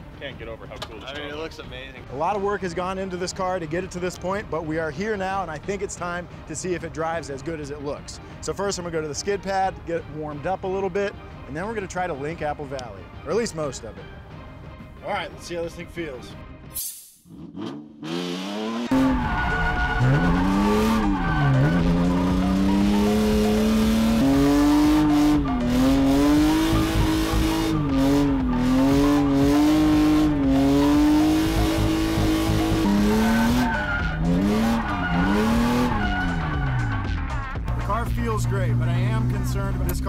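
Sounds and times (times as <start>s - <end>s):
car engine revving: 17.3s - 40.0s
tyres squealing: 18.9s - 27.2s, 29.0s - 37.4s.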